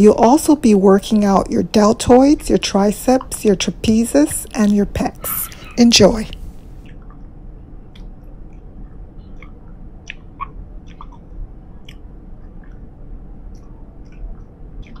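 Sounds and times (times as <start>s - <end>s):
gum chewing clicks and smacks: 7.9s - 15.0s.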